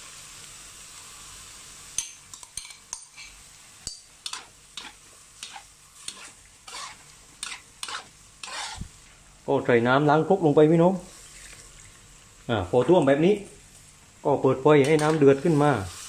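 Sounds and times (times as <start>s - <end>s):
meat sizzling in a pan: 0.0s - 9.4s, 10.5s - 16.0s
utensil scraping and stirring: 2.4s - 8.9s.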